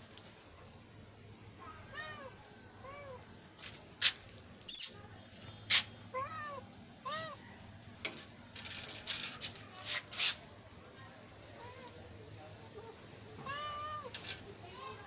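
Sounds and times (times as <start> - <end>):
cat meowing: 1.6 - 3.2, 6.2 - 7.4, 13.4 - 14.2.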